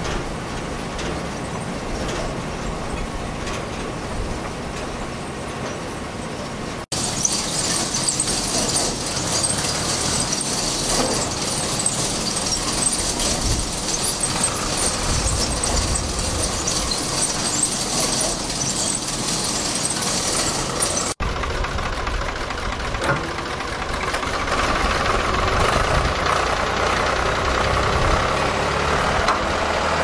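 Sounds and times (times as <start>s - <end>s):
loader engine rumble: 0.0s - 30.0s
high-pitched squealing: 6.9s - 21.2s.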